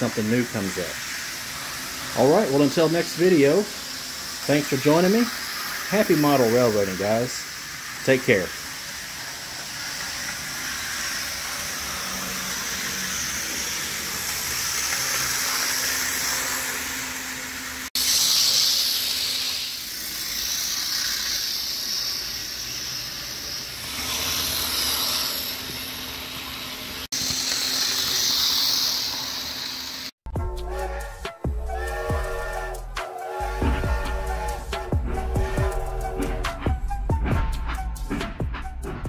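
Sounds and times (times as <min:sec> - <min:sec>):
model train motor whirring: 0:00.0 - 0:30.2.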